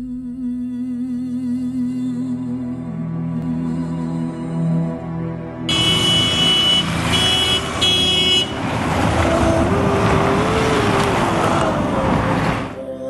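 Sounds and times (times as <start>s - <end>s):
high steady tone: 5.7s - 8.6s
vehicle engine passing: 5.7s - 12.8s
loud road noise: 5.7s - 12.9s.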